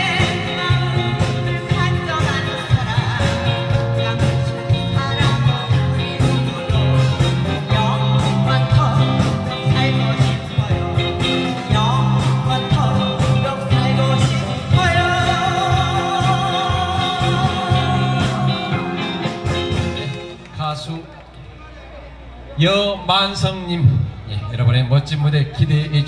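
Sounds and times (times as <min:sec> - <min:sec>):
person singing: 0:00.0 - 0:20.3
guitar accompaniment: 0:00.0 - 0:21.5.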